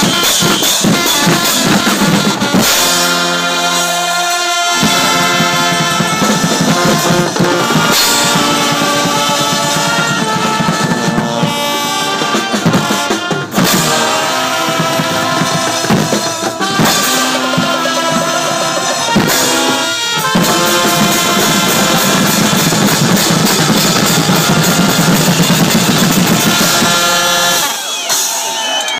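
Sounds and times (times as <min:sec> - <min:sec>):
bass drum: 0:00.0 - 0:03.7, 0:04.7 - 0:27.6
brass band playing loudly: 0:00.0 - 0:28.9
drum kit: 0:00.0 - 0:28.9.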